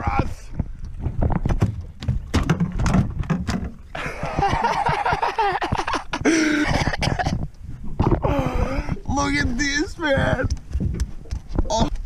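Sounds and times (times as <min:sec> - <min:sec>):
knocks and thumps on metal hull: 0:01.1 - 0:03.8.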